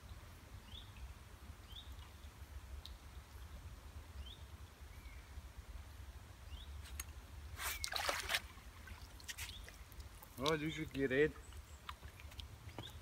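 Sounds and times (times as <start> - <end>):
fish thrashing water splashing: 7.6 - 10.7.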